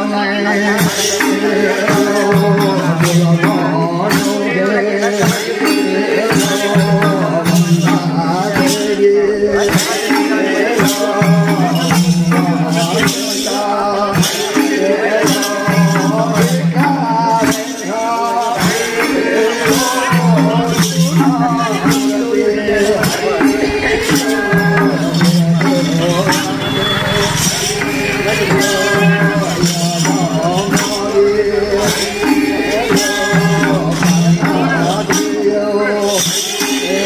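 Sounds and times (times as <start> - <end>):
jingling shaker percussion: 0.0 - 37.0
person singing folk song: 0.0 - 37.0
steady percussion beat: 0.0 - 37.0.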